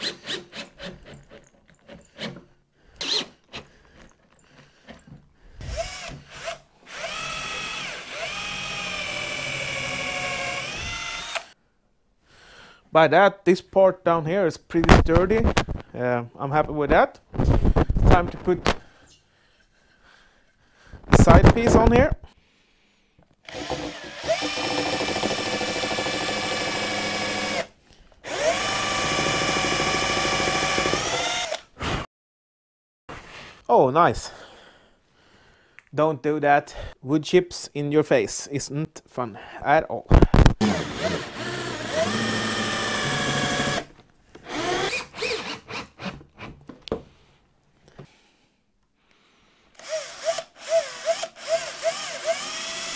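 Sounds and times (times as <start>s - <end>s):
cordless drill whining: 0.0s - 11.6s, 23.4s - 31.7s, 40.5s - 46.4s, 49.8s - 52.9s.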